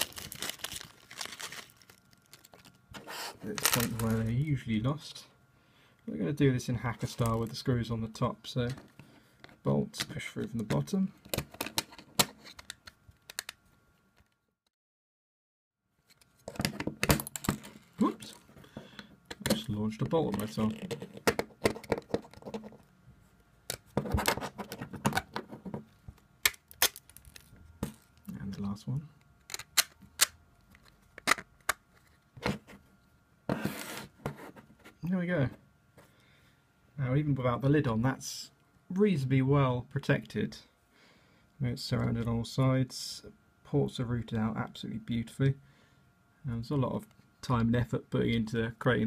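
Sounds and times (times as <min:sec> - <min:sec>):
rustling scrape: 0:02.9 - 0:04.0
plastic parts clicking: 0:11.3 - 0:13.6, 0:29.4 - 0:32.1.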